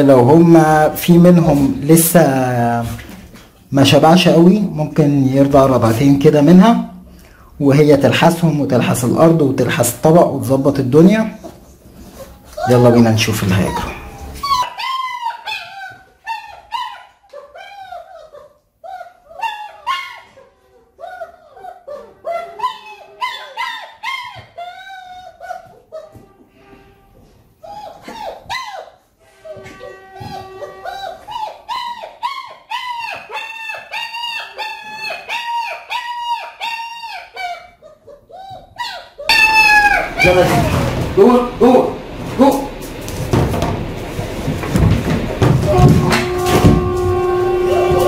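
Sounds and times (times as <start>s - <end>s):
puppies whining: 11.4s - 26.5s, 27.5s - 41.0s, 44.8s - 48.0s.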